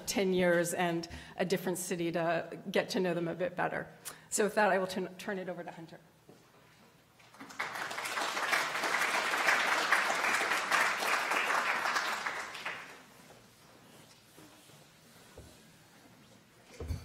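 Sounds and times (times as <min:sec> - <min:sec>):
audience applauding: 0:07.3 - 0:13.0.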